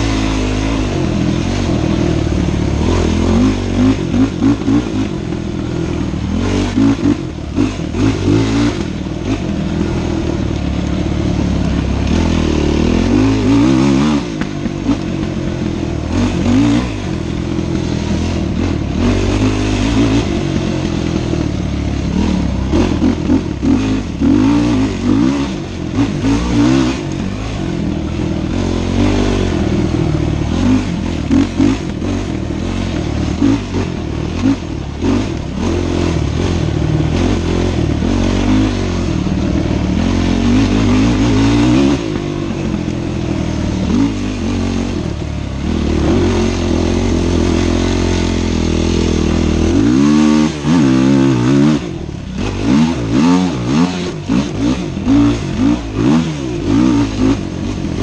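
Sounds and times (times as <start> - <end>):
bike rattling on rough trail: 0.0 - 58.0
dirt bike engine revving: 0.0 - 58.0.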